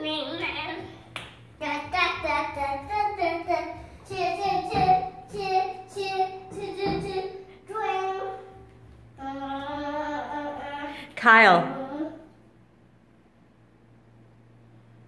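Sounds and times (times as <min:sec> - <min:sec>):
child singing wordlessly: 0:01.6 - 0:11.0.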